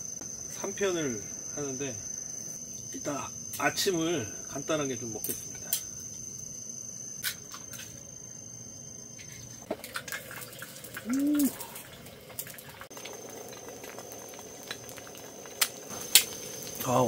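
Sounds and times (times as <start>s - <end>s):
cricket chirping: 0.0s - 17.0s
eggs sizzling on a griddle: 7.2s - 17.0s.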